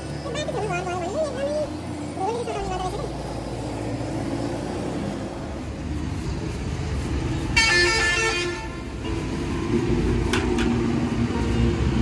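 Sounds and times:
road traffic rumble: 0.0 - 12.0
vehicle horn: 7.5 - 8.8.

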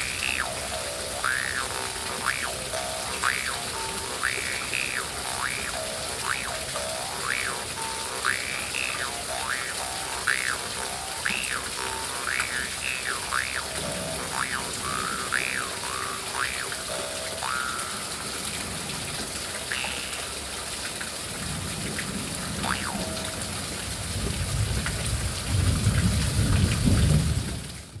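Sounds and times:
jaw harp: 0.0 - 18.4, 19.6 - 20.3, 22.6 - 23.4
steady rain: 0.0 - 28.0.

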